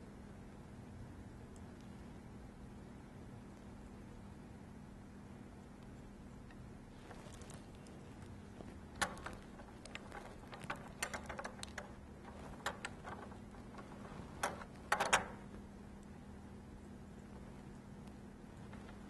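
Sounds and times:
faint steady hum: 0:00.0 - 0:19.0
small clicks and taps of soldering: 0:07.3 - 0:16.1.

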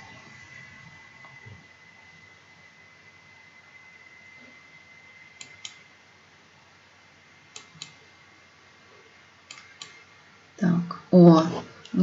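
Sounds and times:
faint high whine: 0:00.0 - 0:12.0
computer mouse double-clicks: 0:05.4 - 0:05.8.

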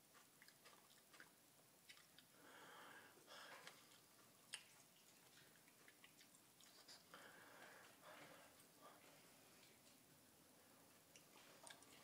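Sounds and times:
man chewing with wet clicks: 0:00.0 - 0:02.4, 0:03.3 - 0:08.0, 0:11.0 - 0:12.0
breaths: 0:02.3 - 0:03.9, 0:07.1 - 0:09.8.

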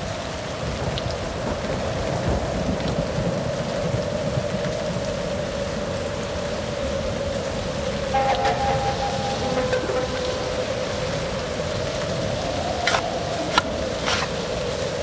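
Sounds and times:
steady rain falling: 0:00.0 - 0:15.0
droning tone sinking in pitch: 0:08.1 - 0:13.0.

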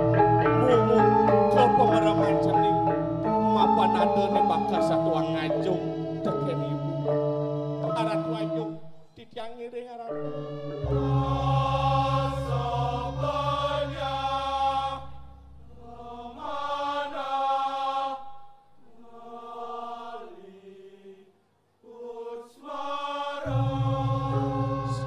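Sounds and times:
person chanting long notes: 0:00.0 - 0:08.8, 0:10.1 - 0:15.2
steady low drone: 0:10.2 - 0:16.5.

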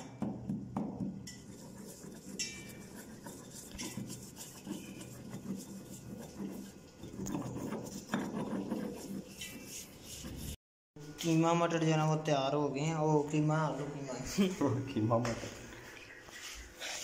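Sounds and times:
stone pestle grinding in mortar: 0:01.2 - 0:10.6.

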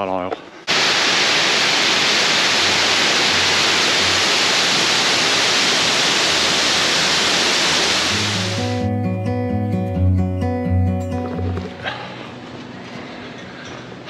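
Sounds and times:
rushing water: 0:00.7 - 0:08.7
guitar music: 0:08.1 - 0:14.0.

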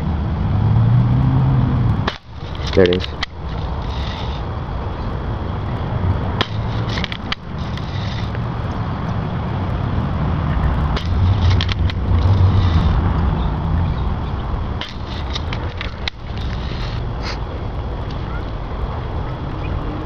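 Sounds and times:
wind rumble on microphone: 0:00.0 - 0:20.0
sharp clicks: 0:02.0 - 0:04.5, 0:06.4 - 0:09.2, 0:11.0 - 0:13.3.

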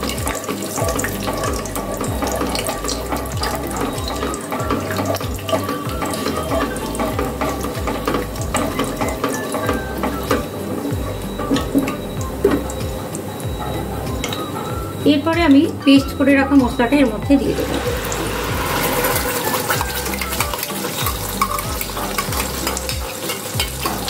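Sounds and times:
spatula scraping pan: 0:00.0 - 0:12.7, 0:17.4 - 0:24.0
spices sizzling in hot oil: 0:00.0 - 0:24.0.

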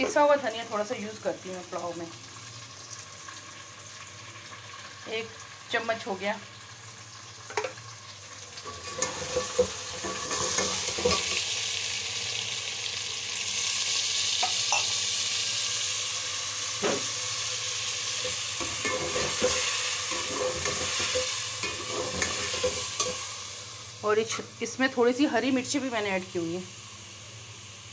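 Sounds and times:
chicken sizzling in oil: 0:00.1 - 0:27.9
spoon knocking and scraping pot: 0:08.8 - 0:11.4, 0:18.2 - 0:23.2.

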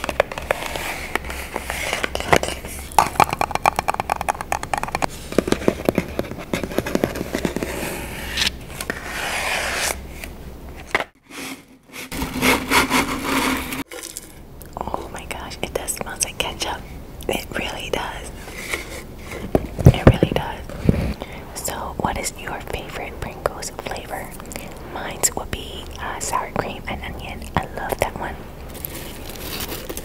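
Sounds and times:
fingernails scratching cardboard tube: 0:11.3 - 0:13.8.

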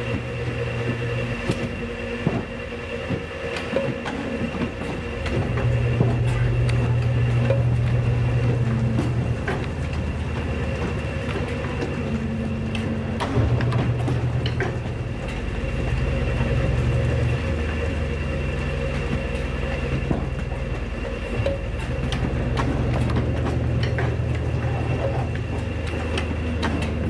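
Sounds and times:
paper cutter humming: 0:00.0 - 0:27.0.

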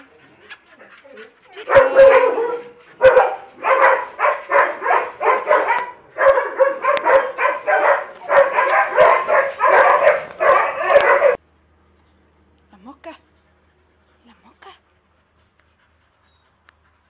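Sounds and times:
small dog barking: 0:01.6 - 0:11.4.

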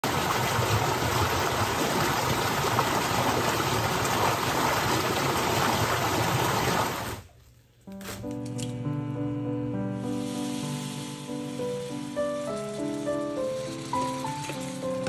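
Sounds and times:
water rushing over rocks: 0:00.0 - 0:07.2.

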